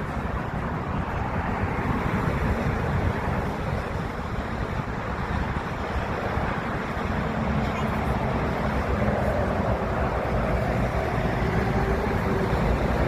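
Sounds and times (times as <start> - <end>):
wind buffeting microphone: 0.0 - 13.0
jet airliners taxiing: 4.4 - 13.0.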